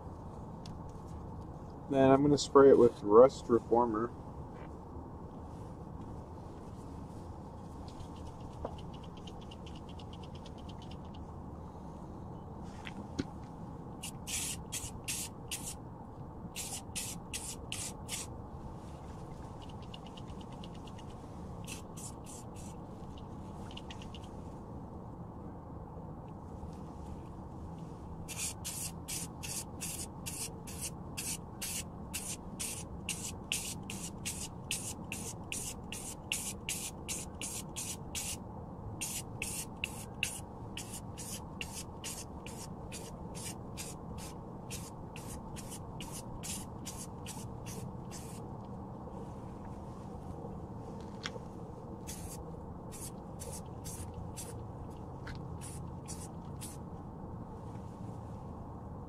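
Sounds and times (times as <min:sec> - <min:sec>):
aerosol can spraying in bursts: 0:14.0 - 0:15.8, 0:16.6 - 0:18.3, 0:21.6 - 0:22.7, 0:28.3 - 0:38.4, 0:39.0 - 0:48.4, 0:52.1 - 0:54.5, 0:55.6 - 0:56.8.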